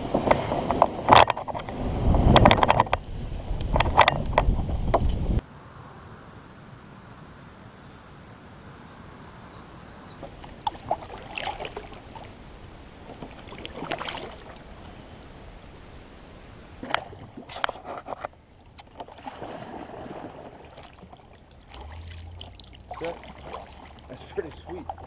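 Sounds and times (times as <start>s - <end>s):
moving water hiss: 4.7s - 25.0s
kayak paddle splashing: 10.0s - 25.0s.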